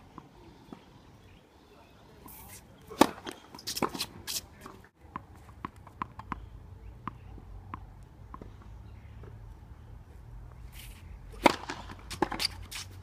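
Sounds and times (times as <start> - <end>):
tennis ball bouncing on hard court: 5.1 - 6.4, 11.3 - 12.6.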